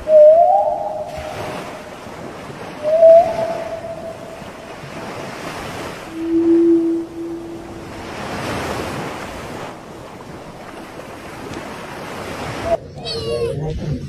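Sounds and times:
whale calls: 0.0s - 2.0s, 2.7s - 4.9s, 5.5s - 9.0s
sea water lapping: 0.0s - 14.0s
wind on microphone: 0.0s - 14.0s.

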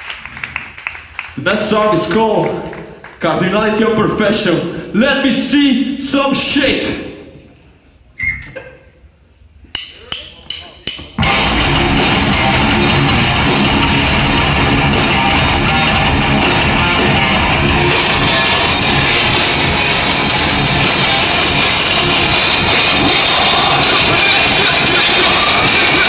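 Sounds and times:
drum count-in hits: 9.7s - 26.0s
heavy metal band playing: 11.2s - 26.0s.

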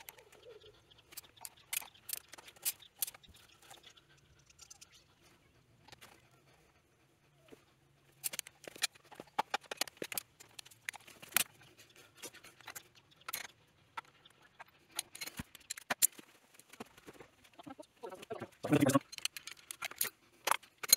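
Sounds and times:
tools clicking and tapping on metal: 1.1s - 3.9s, 8.1s - 16.3s, 19.0s - 20.9s.

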